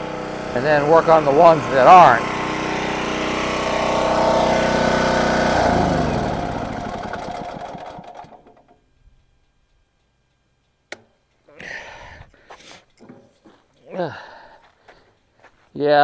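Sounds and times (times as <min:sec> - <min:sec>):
generator engine winding down: 0:00.0 - 0:08.8.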